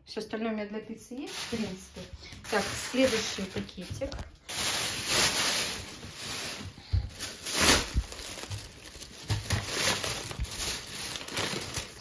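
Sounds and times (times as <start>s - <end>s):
plastic bag rustling: 1.2s - 12.0s.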